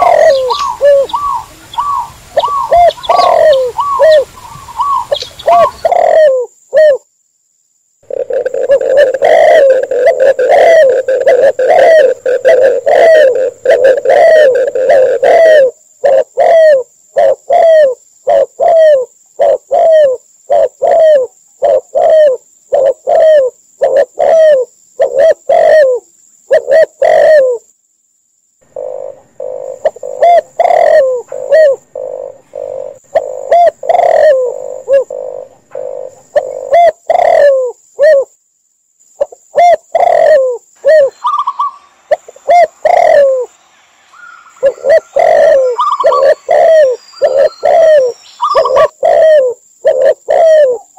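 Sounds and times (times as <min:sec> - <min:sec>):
short dove coos: 0:00.0 - 0:07.0, 0:08.0 - 0:27.6, 0:28.7 - 0:38.3, 0:44.6 - 0:50.9
steady low coo: 0:00.0 - 0:07.1, 0:08.0 - 0:27.7, 0:28.6 - 0:38.4, 0:39.2 - 0:43.5, 0:44.6 - 0:50.9.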